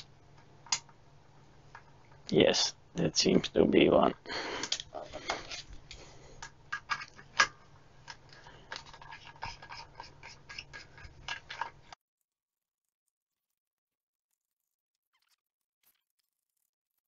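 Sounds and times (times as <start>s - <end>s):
metal clicks and scrapes on plastic: 4.6s - 12.0s.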